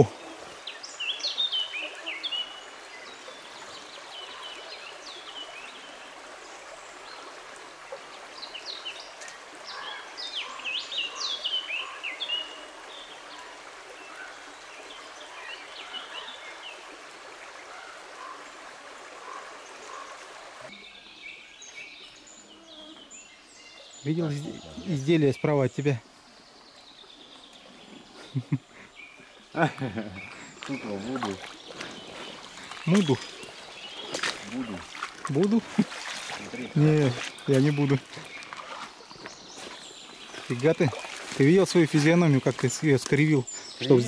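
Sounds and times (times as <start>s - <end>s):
songbirds chirping: 0.0s - 44.0s
river rushing over stones: 30.2s - 44.0s.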